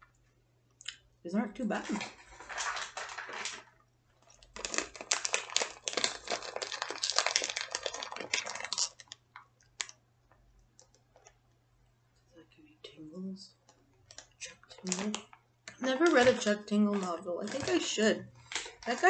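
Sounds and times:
plastic bag crinkling: 1.7 - 11.4, 14.0 - 19.0.

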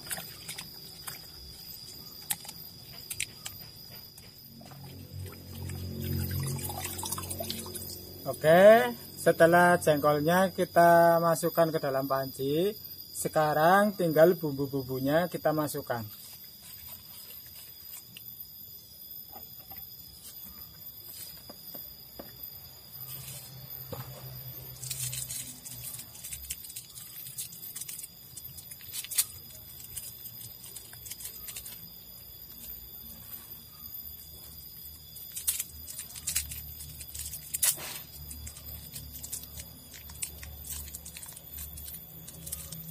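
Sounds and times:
rustling of leaves: 15.7 - 18.4, 22.7 - 42.9.

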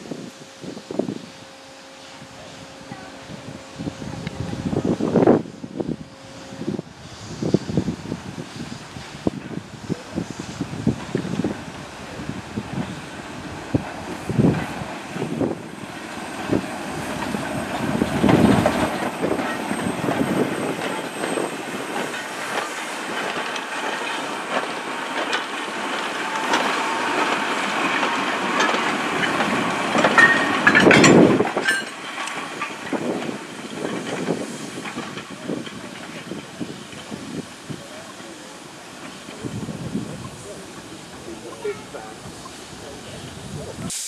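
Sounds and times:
goods train rolling slowly: 0.0 - 44.0
wheels clicking over rail joints: 15.8 - 44.0.

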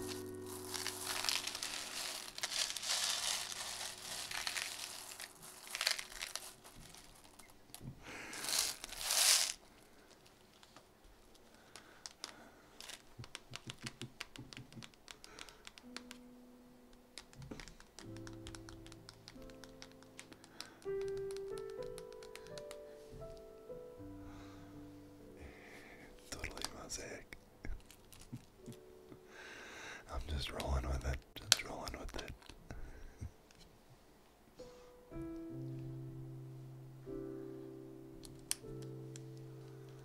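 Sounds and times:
soft background music: 0.0 - 9.3, 14.8 - 40.0
plastic pieces rattling and clicking: 8.4 - 9.6.

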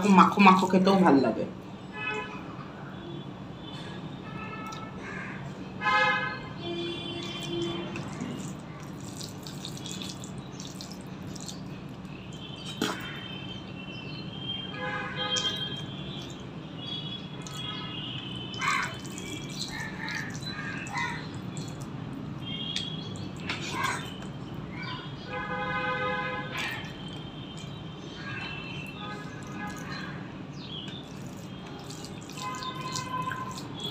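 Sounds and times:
chewing and mouth smacks: 7.2 - 13.1, 17.4 - 17.7, 18.5 - 24.4, 26.6 - 27.8, 30.9 - 33.9
fingers squelching wet rice: 7.2 - 13.2, 15.3 - 16.4, 17.4 - 24.3, 26.5 - 27.8, 30.8 - 33.9.

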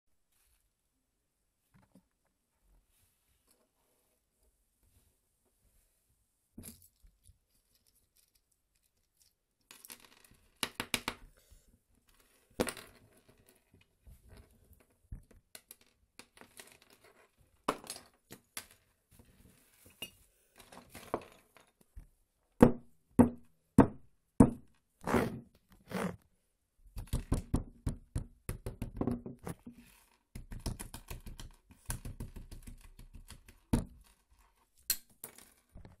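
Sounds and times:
small parts clicking and rattling: 6.6 - 10.8.

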